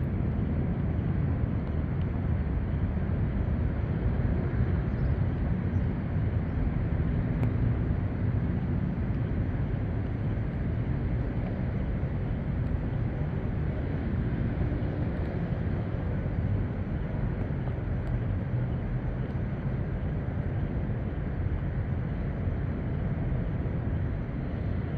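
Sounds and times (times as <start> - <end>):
low outdoor background rumble: 0.0 - 24.9.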